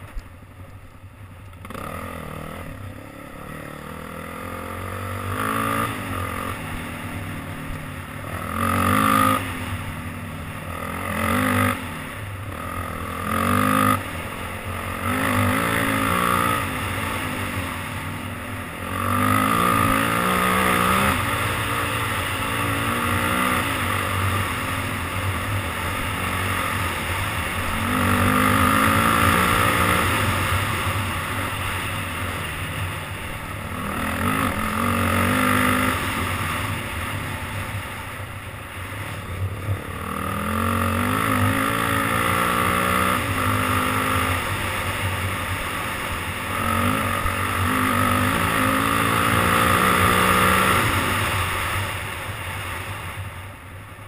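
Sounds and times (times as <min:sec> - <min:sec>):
off-road vehicle engine revving: 0:03.4 - 0:07.0, 0:07.6 - 0:09.8, 0:10.6 - 0:18.1, 0:18.7 - 0:32.5, 0:33.4 - 0:37.6, 0:39.9 - 0:51.8.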